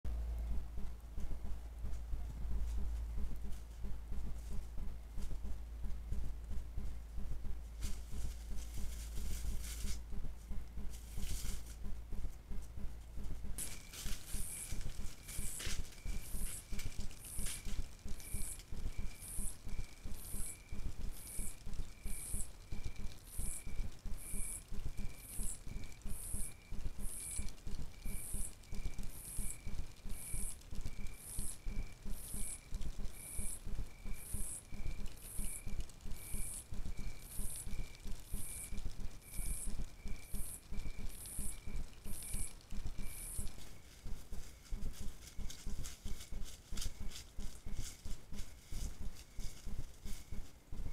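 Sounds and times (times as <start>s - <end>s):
low rumble: 0.1s - 50.9s
insect chirping: 2.4s - 50.9s.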